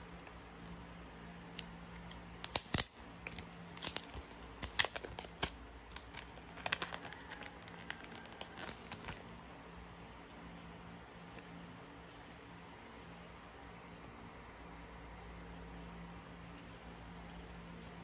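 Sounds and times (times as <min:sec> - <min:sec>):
plastic sleeve crinkling: 0:00.1 - 0:09.2.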